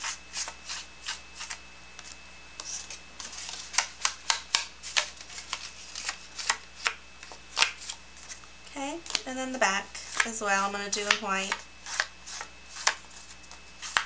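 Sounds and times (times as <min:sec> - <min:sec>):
paper rustling: 0:04.8 - 0:06.6.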